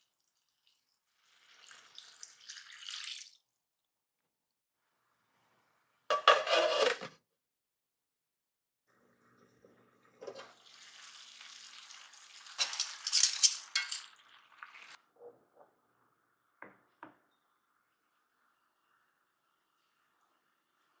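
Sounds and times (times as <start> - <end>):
utensil clinking and scraping pan: 6.1 - 7.2, 12.6 - 14.2.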